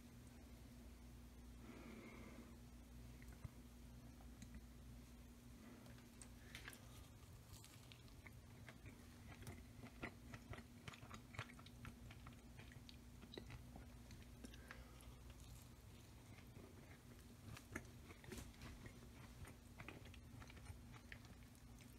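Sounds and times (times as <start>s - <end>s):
faint steady hum: 0.0s - 21.9s
person chewing pie crust: 5.6s - 21.9s.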